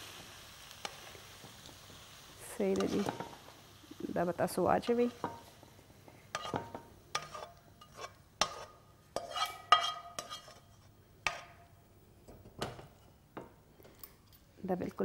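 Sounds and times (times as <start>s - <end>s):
spatula scraping and knocking a wok: 2.7s - 3.5s, 5.0s - 5.6s, 6.3s - 13.6s.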